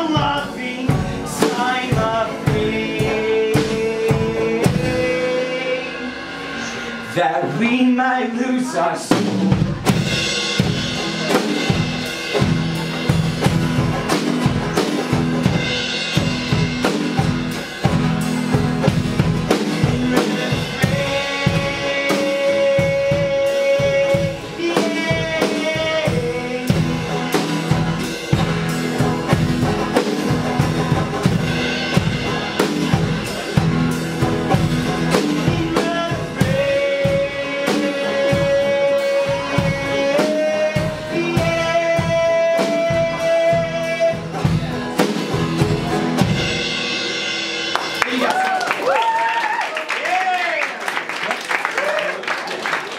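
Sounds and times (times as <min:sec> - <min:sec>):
strummed guitars: 0:00.0 - 0:48.9
drum kit beating: 0:00.0 - 0:52.9.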